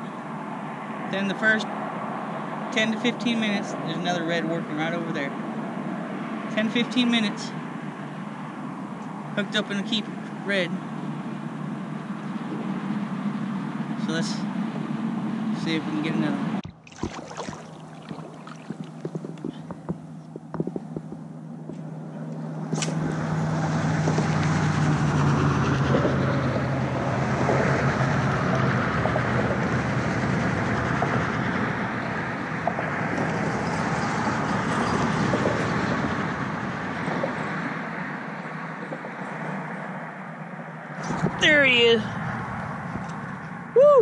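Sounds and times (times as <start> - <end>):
low engine hum: 0.0 - 44.0
road traffic rushing: 0.0 - 44.0.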